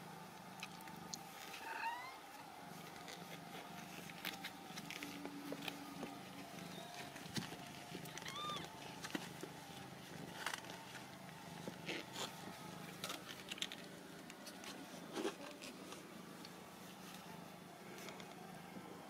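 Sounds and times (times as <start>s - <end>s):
kittens squeaking: 1.6s - 2.2s, 8.0s - 8.7s.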